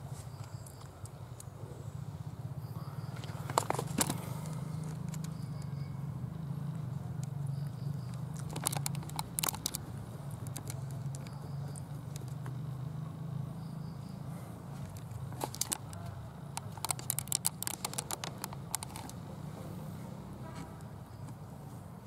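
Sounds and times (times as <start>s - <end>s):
sharp crackling clicks: 3.3s - 5.7s, 7.2s - 12.6s, 14.9s - 19.3s.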